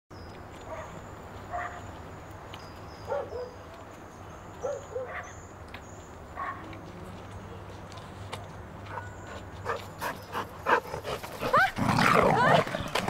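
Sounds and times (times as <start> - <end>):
dog barking: 1.5 - 1.8, 3.1 - 3.6, 4.6 - 5.3.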